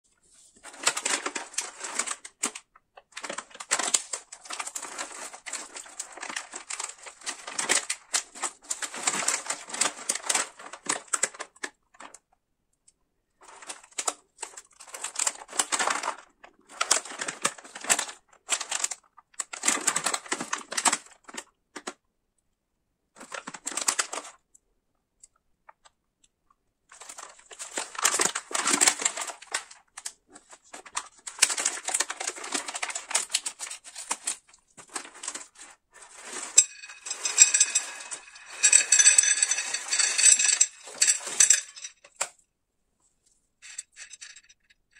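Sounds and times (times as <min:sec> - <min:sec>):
plastic snack bag crackling: 0:27.0 - 0:42.1.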